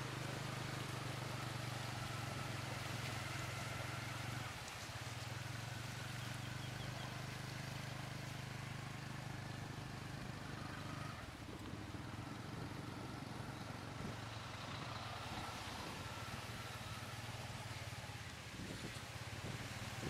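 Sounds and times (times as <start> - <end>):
road noise: 0.0 - 20.0
motorbike engine running: 6.1 - 20.0.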